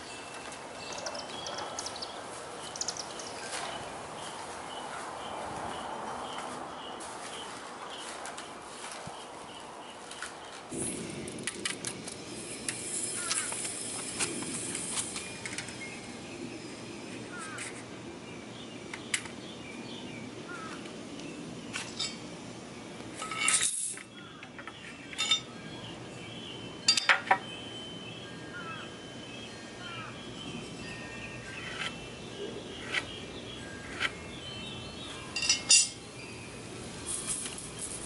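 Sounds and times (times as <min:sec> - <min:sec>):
bird chirps: 0:00.0 - 0:08.2
outdoor hiss: 0:02.0 - 0:28.3, 0:34.3 - 0:38.0.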